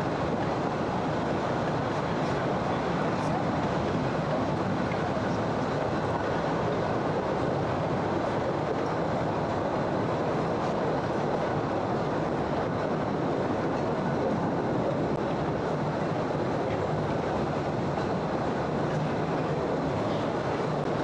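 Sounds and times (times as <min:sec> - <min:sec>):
train rumbling along track: 0:00.0 - 0:21.0.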